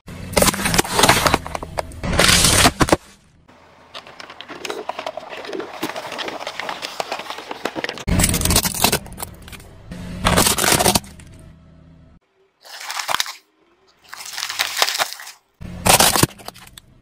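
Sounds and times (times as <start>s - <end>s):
plastic toys crunching: 0.3s - 9.6s, 10.2s - 11.2s, 12.6s - 17.0s
plastic bottles crackling and creaking: 3.6s - 9.6s, 12.6s - 16.9s.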